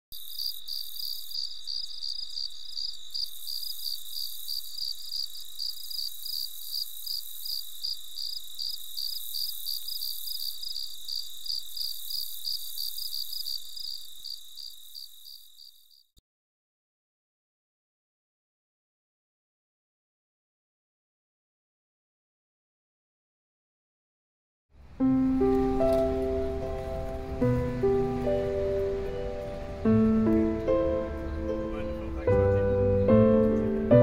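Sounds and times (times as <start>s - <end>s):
crickets chirping: 0.1s - 16.2s, 24.8s - 34.0s.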